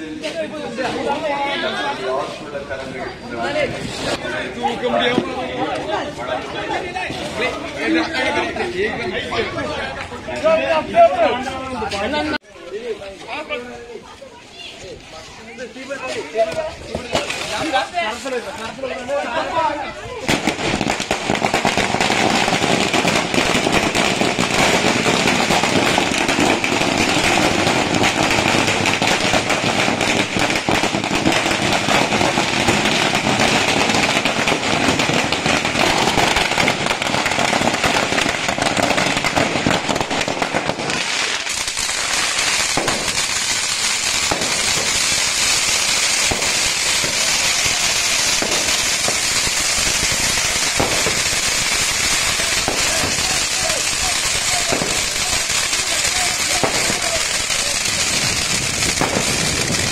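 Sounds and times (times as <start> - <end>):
firecrackers crackling: 0.0 - 59.9
fountain fireworks hissing: 12.7 - 59.9
firework pops: 16.4 - 18.4, 20.2 - 59.9.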